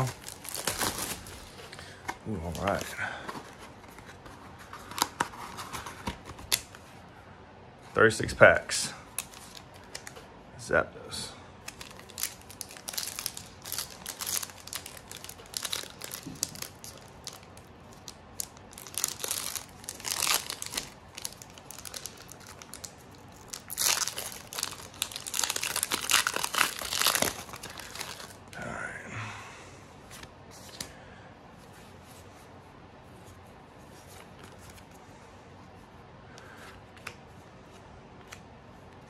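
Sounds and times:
foil wrappers crinkling and tearing: 0.0s - 1.6s, 11.6s - 28.4s.

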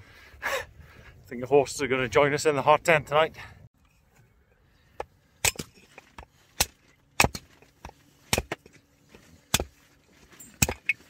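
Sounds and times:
axe chopping wood: 5.0s - 9.9s, 10.6s - 11.0s.

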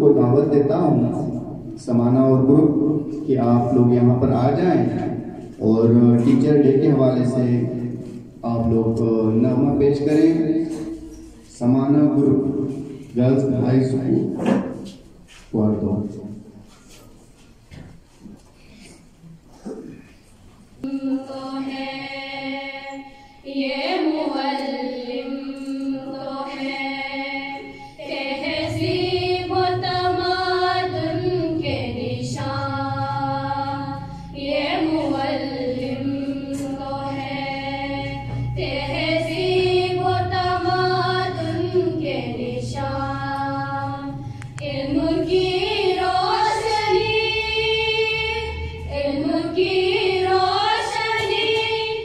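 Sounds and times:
girls singing unaccompanied: 20.7s - 52.0s.

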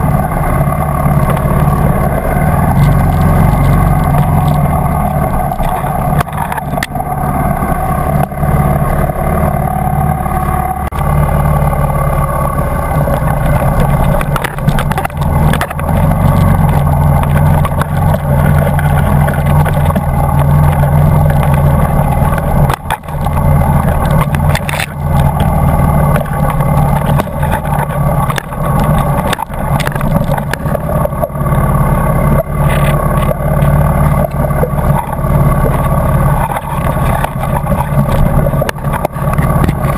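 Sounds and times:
dirt bike engine running: 0.0s - 39.9s
bike knocking over bumps: 13.0s - 31.3s.

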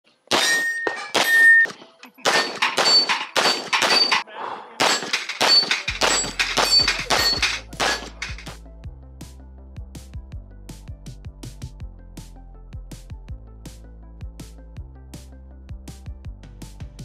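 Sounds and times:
pistol shots: 0.3s - 4.2s, 4.8s - 8.6s
steel targets clanging: 0.3s - 4.2s, 4.8s - 8.6s.

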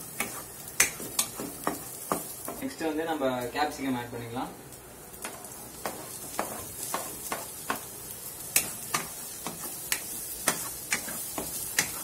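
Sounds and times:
vegetables sizzling in oil: 0.0s - 12.0s
spatula knocking and scraping pan: 0.1s - 2.6s, 5.2s - 7.9s, 8.5s - 12.0s.

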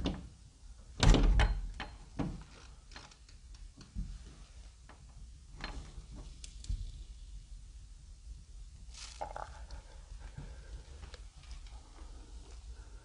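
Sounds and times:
doorknob turning and rattling: 1.0s - 2.4s.

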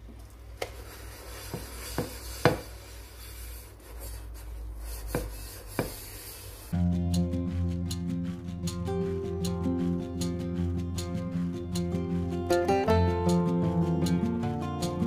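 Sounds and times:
sponge scrubbing pot: 0.6s - 6.8s.

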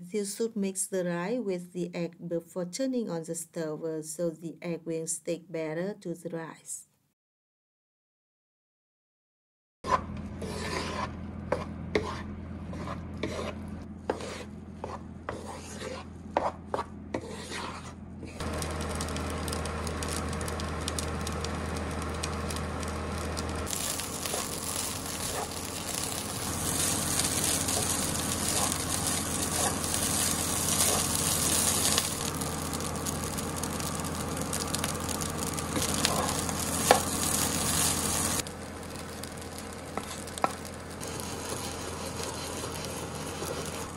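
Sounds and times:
wooden spatula scraping a pan: 9.8s - 18.4s, 23.7s - 32.3s, 34.4s - 38.4s, 39.9s - 43.9s
rice sizzling in a frying pan: 18.4s - 43.9s.

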